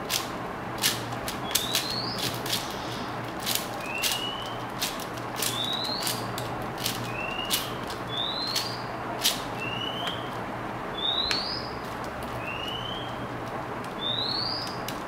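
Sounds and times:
puzzle cube layers clicking: 0:00.0 - 0:02.7, 0:03.3 - 0:09.4.

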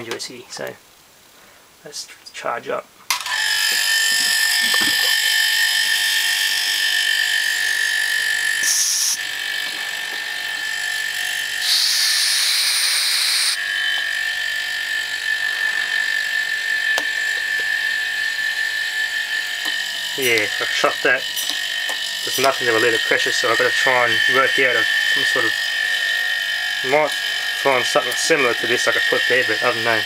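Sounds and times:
compressor high-pitched whine: 0:03.1 - 0:30.0
air hissing: 0:08.6 - 0:10.2, 0:11.6 - 0:13.6.

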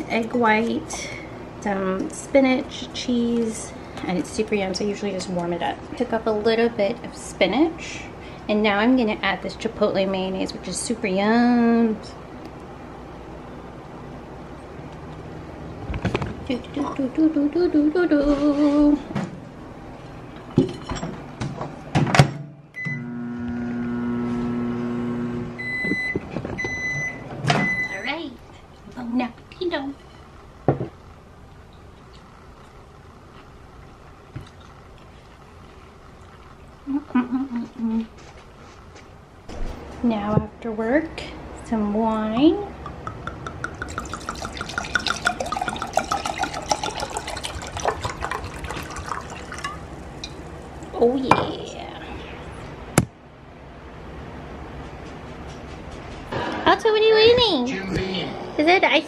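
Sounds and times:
microwave oven humming: 0:00.0 - 0:54.9
long end-of-cycle beeps: 0:22.8 - 0:23.3, 0:25.6 - 0:28.2
wine pouring into glass: 0:42.9 - 0:51.0.

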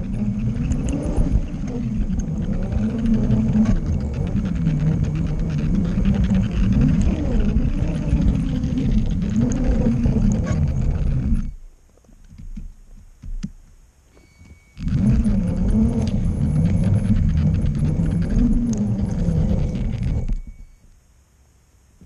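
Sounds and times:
toy train motor rumbling: 0:00.0 - 0:11.6, 0:14.8 - 0:20.7.

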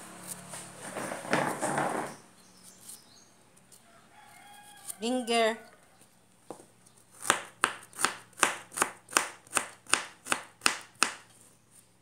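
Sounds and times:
knife chopping on board: 0:07.2 - 0:11.3.

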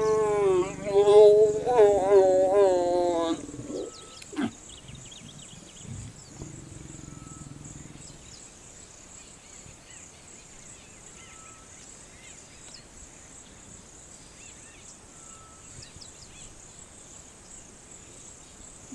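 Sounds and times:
insect chorus shrilling: 0:00.0 - 0:10.0
faint bird chirps: 0:03.3 - 0:08.6, 0:09.2 - 0:12.9, 0:14.2 - 0:16.6.

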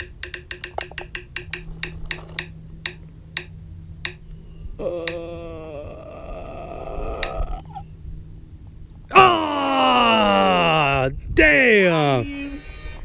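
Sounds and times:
roulette wheel app ticking: 0:00.0 - 0:04.3
held wavering tone: 0:00.0 - 0:05.7.

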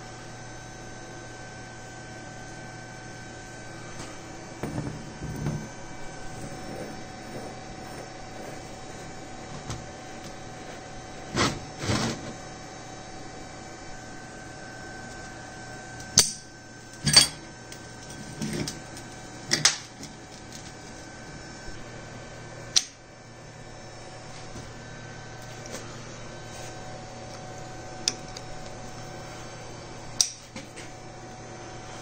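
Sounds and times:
workshop hum: 0:00.0 - 0:32.0
metal parts knocking and clinking: 0:17.0 - 0:18.8.

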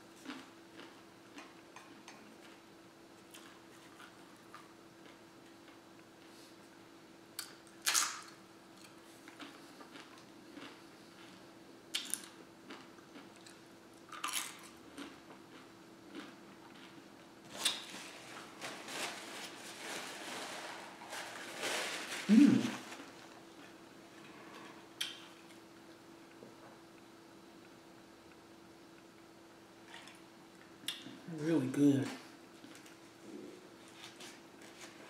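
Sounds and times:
chewing: 0:00.2 - 0:02.6, 0:08.8 - 0:17.0
chips crunching: 0:07.4 - 0:23.3
low hum-like voice sound: 0:21.8 - 0:24.9, 0:31.1 - 0:32.4.

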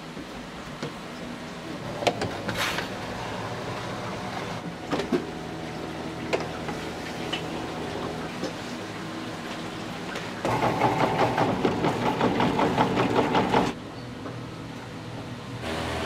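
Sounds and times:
electric motor hum: 0:15.6 - 0:16.0.

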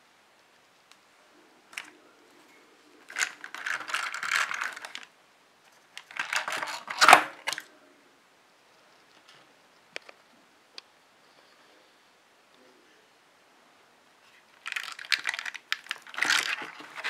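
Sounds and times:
plastic packaging crinkling: 0:03.1 - 0:05.1, 0:06.0 - 0:07.6, 0:14.5 - 0:17.0.

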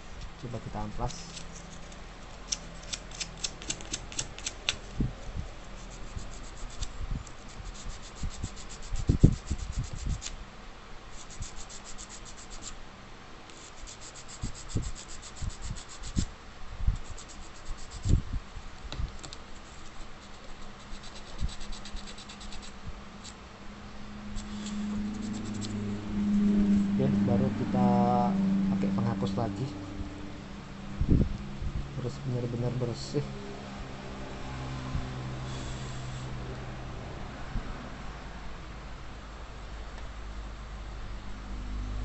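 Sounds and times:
sandpaper scratching: 0:00.4 - 0:04.8, 0:05.5 - 0:10.4, 0:11.1 - 0:12.8, 0:13.5 - 0:16.3, 0:17.0 - 0:18.2, 0:19.5 - 0:23.4, 0:24.3 - 0:25.8.

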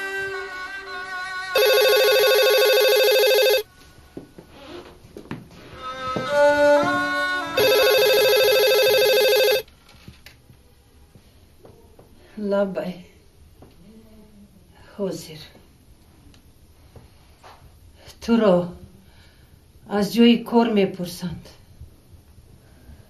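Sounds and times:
electronic telephone ring: 0:01.6 - 0:03.7, 0:07.6 - 0:09.7.

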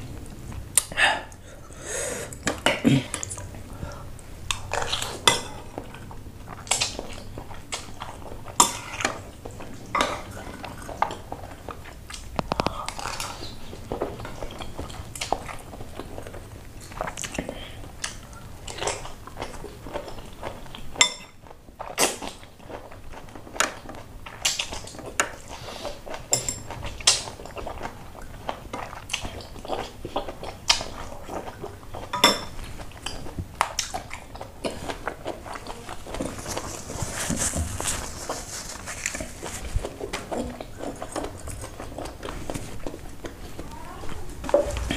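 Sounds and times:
chewing: 0:02.3 - 0:44.9
metal cutlery clinking on ceramic bowl: 0:08.6 - 0:09.2, 0:21.0 - 0:21.4, 0:26.3 - 0:27.2, 0:32.1 - 0:32.6.

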